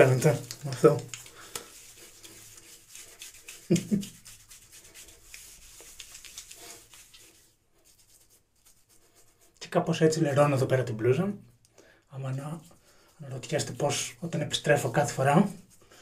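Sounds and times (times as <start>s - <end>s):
hands rubbing soap into scalp: 0.0s - 9.6s.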